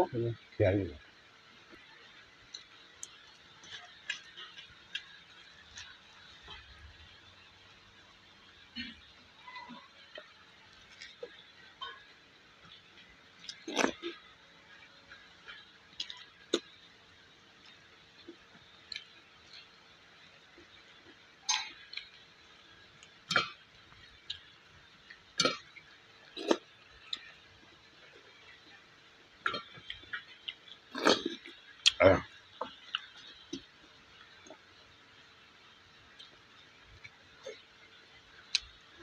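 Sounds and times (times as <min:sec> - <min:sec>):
faint steady hum: 0:00.0 - 0:39.0
person chewing: 0:13.4 - 0:14.2, 0:15.4 - 0:16.7, 0:20.6 - 0:22.1, 0:25.4 - 0:25.6, 0:26.2 - 0:27.4, 0:29.4 - 0:32.0.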